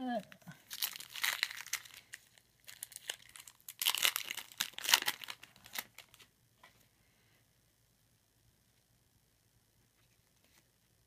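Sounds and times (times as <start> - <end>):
card pack wrapper crinkling and tearing: 0.2 - 6.3.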